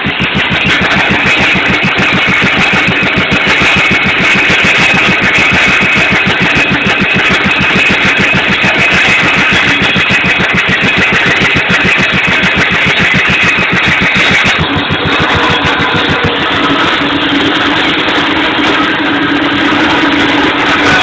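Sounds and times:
circular saw cutting timber: 0.0s - 21.0s
stationary engine running: 0.0s - 21.0s.

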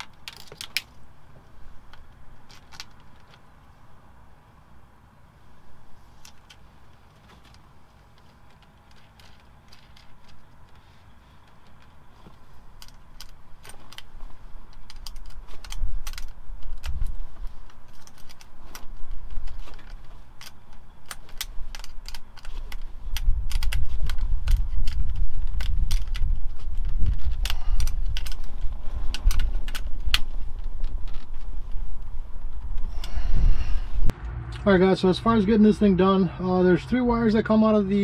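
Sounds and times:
low rumble: 23.0s - 36.4s.

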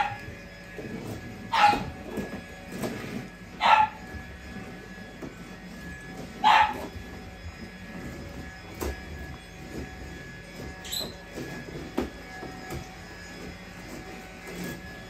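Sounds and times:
dog barking: 0.0s - 0.2s, 1.5s - 1.9s, 3.6s - 4.0s, 6.4s - 6.8s.

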